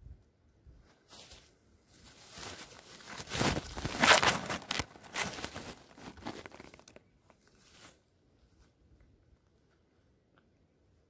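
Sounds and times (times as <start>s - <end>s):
rustling against microphone: 0.8s - 8.8s.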